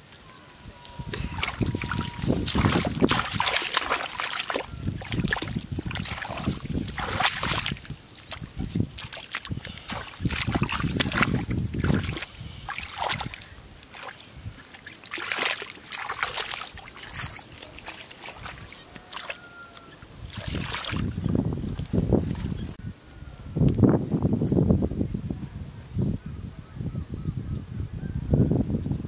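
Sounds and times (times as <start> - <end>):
hands splashing in muddy water: 1.0 - 22.7.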